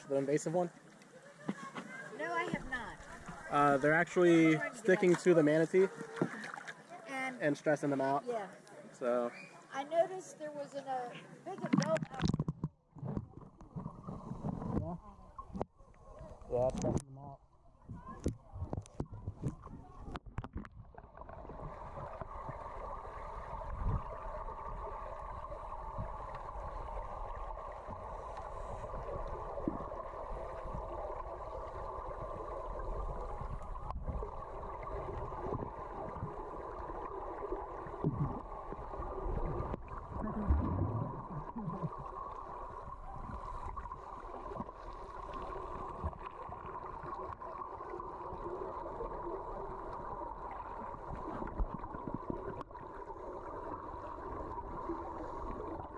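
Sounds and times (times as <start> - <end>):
muffled underwater rushing: 17.6 - 55.9
bubbles gurgling underwater: 19.5 - 55.9.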